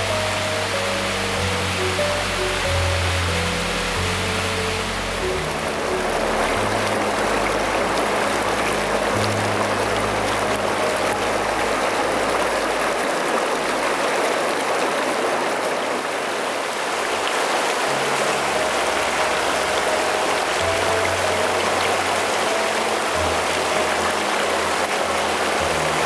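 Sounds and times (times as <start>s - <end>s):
stream rushing over rocks: 0.0s - 26.0s.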